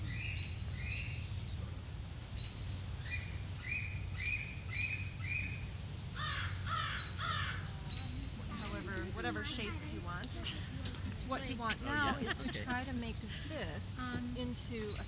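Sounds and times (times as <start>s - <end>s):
birds chirping: 0.0s - 15.0s
crow cawing: 6.2s - 7.8s.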